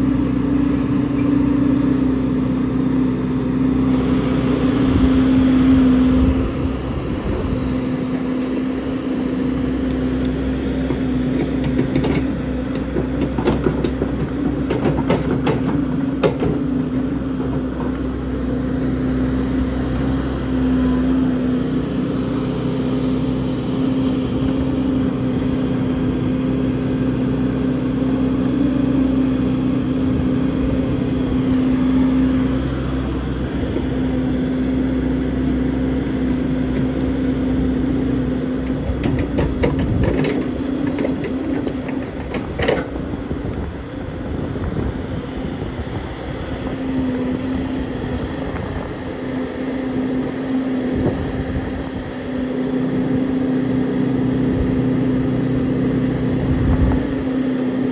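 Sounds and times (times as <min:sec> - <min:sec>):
diesel engine running: 0:00.0 - 0:57.9
metal clanks and rattles: 0:38.8 - 0:43.0.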